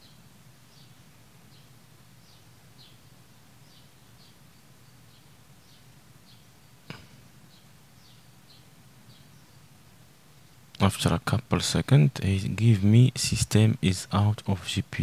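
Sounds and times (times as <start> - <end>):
small bird chirping: 0.0 - 10.8
low steady hum: 0.0 - 15.0.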